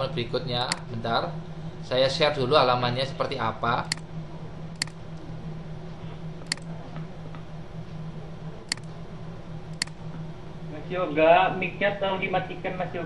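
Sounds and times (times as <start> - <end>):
low hum: 0.0 - 13.0
computer mouse clicks: 4.8 - 5.0, 6.4 - 6.7, 8.7 - 8.9, 9.7 - 10.0.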